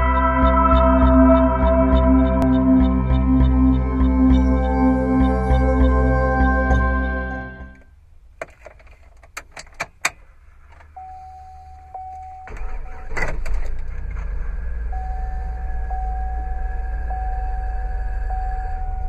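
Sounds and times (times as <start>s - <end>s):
engine cranking and idling: 12.5s - 19.0s.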